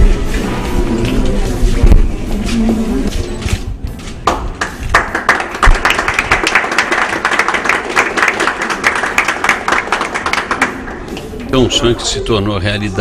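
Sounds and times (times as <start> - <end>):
group applauding: 4.2 - 11.5.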